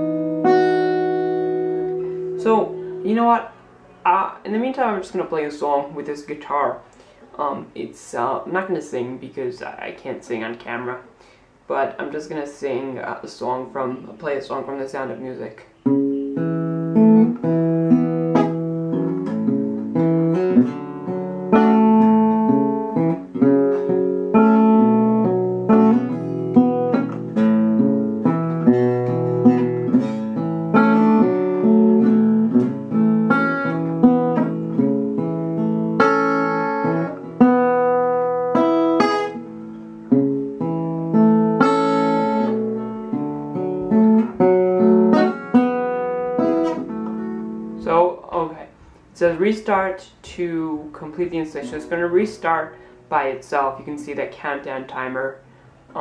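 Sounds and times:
solo guitar playing: 0.0s - 7.8s, 15.7s - 49.6s.

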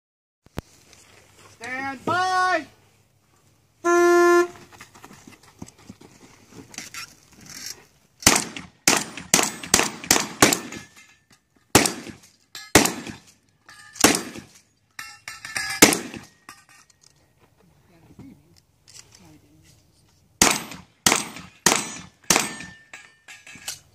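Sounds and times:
rapid gunshots: 8.3s - 10.8s, 11.8s - 12.2s
steel targets ringing: 12.5s - 13.0s, 15.0s - 16.9s, 21.5s - 23.8s.

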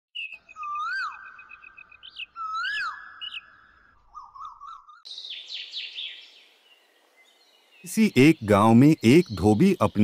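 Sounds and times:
cartoon whistling bird calls: 2.4s - 5.0s.

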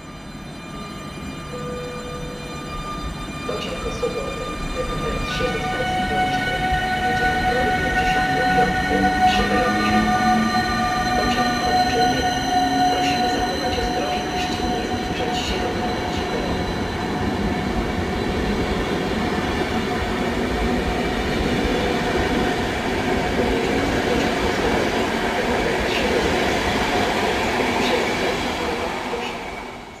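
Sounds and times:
thin steady squeal: 0.0s - 20.2s.

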